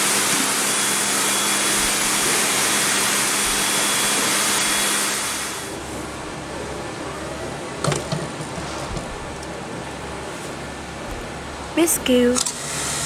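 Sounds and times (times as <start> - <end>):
bottling machinery rushing: 0.0 - 6.2.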